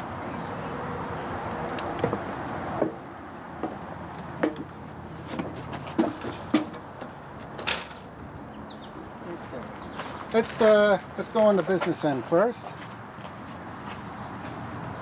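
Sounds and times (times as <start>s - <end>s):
footsteps on metal steps: 3.6s - 7.9s, 11.2s - 14.6s
footsteps on gravel: 9.4s - 15.0s.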